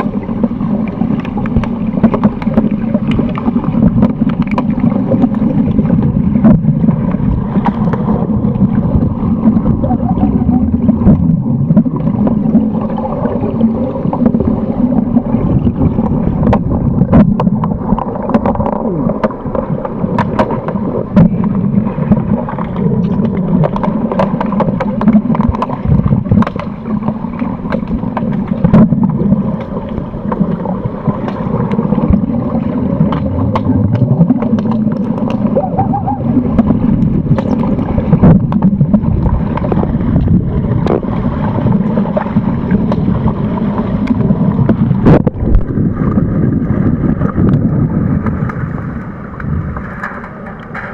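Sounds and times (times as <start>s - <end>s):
muffled underwater rumble and gurgle: 0.0s - 50.9s
sharp clicks and knocks: 16.4s - 21.4s.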